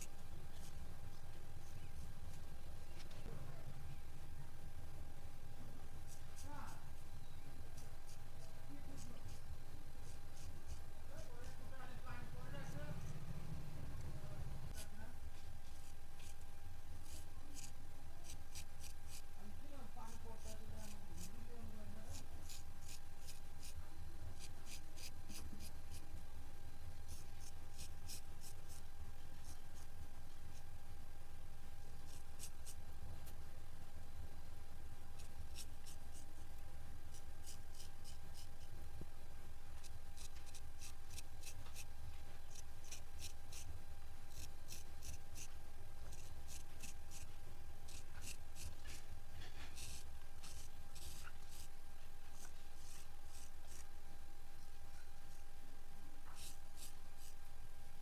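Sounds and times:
razor scraping stubble: 7.7s - 13.3s, 15.6s - 19.4s, 22.0s - 23.8s, 24.4s - 26.1s, 27.1s - 29.9s, 32.0s - 33.4s, 35.2s - 36.4s, 37.1s - 38.8s, 39.8s - 43.7s, 44.3s - 51.7s, 52.3s - 53.9s, 56.3s - 57.4s.

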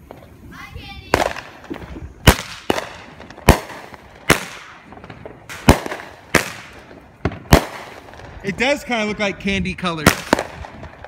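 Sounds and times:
firework cake bangs: 1.1s - 8.7s, 10.0s - 11.0s.

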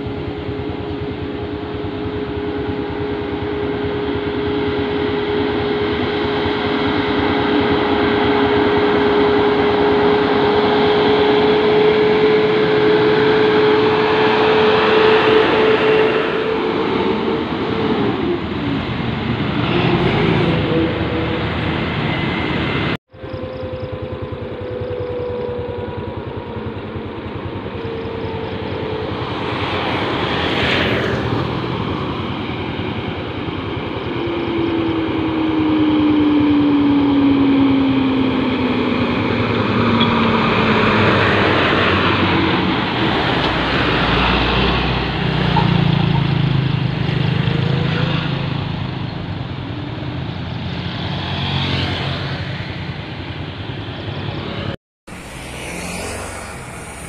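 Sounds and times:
tyre and traffic noise: 0.0s - 57.0s
diesel truck passing: 4.3s - 24.4s, 25.7s - 57.0s
vehicle whoosh passing: 50.8s - 57.0s.

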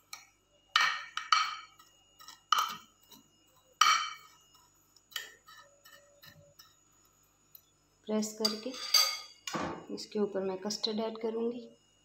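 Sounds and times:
steel spoon clinking on glass dish: 8.4s - 9.4s.

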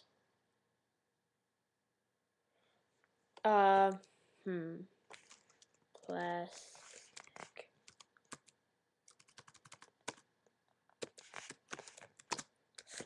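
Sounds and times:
typing on computer keyboard: 7.1s - 10.2s, 11.0s - 13.0s.

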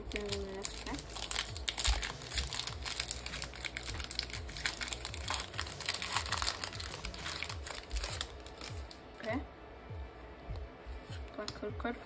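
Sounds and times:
foil wrapper crinkling: 0.0s - 9.0s.

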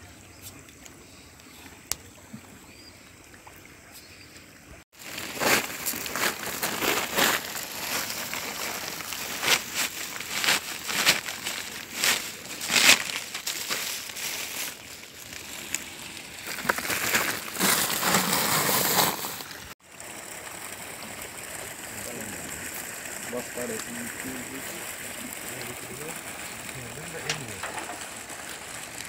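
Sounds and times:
feed pellets rattling: 5.0s - 15.7s
plastic feed sack rustling: 5.0s - 15.8s, 16.4s - 19.7s.

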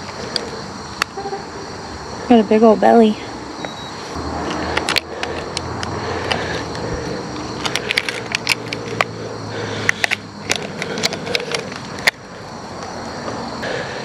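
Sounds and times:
handling clicks and rattles: 4.4s - 6.5s, 7.4s - 9.2s, 9.8s - 12.2s.

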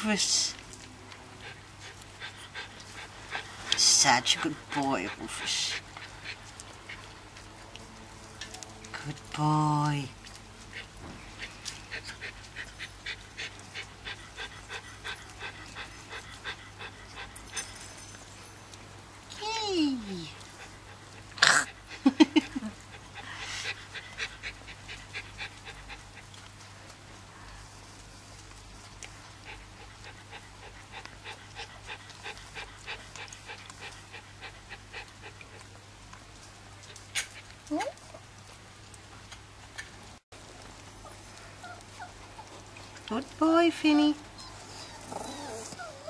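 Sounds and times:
puppy chewing and smacking: 4.5s - 9.3s, 10.0s - 17.5s, 20.4s - 43.4s.

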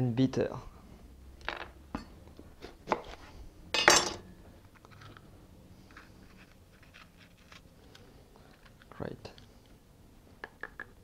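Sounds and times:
small clicks and rustles: 4.6s - 9.8s.

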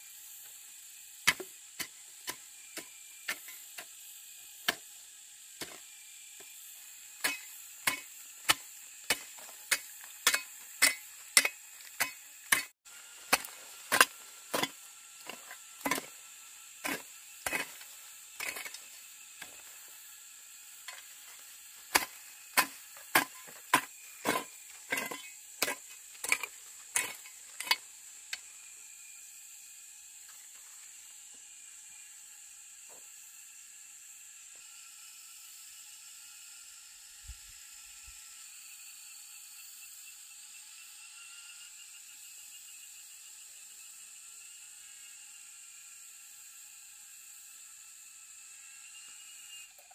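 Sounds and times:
blade chopping wood: 1.2s - 4.0s, 4.6s - 5.0s, 5.6s - 6.6s, 7.2s - 16.2s, 16.8s - 19.7s, 20.8s - 28.4s.

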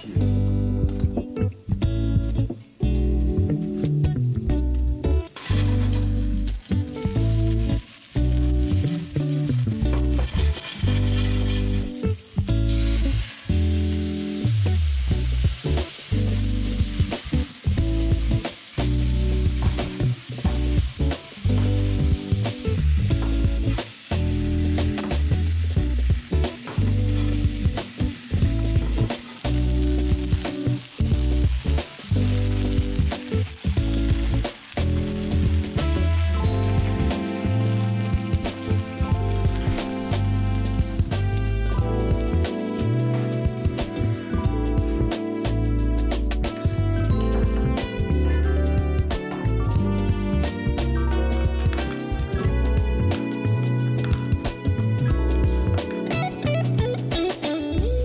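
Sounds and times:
background music with low notes: 0.0s - 58.0s
chicken sizzling in oil: 1.3s - 44.1s.

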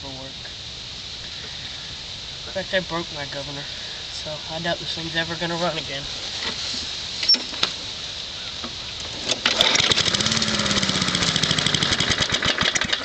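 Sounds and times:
small mower engine running unevenly: 9.0s - 13.0s.

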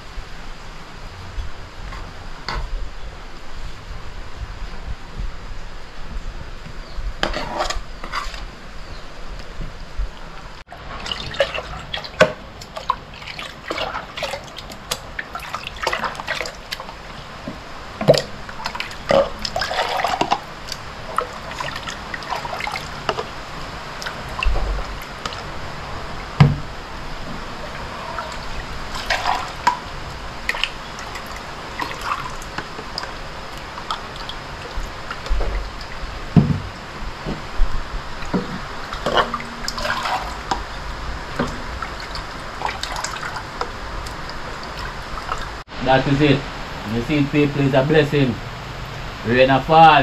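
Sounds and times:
liquid pouring and splashing: 10.7s - 26.7s, 27.6s - 36.7s, 37.5s - 45.6s.

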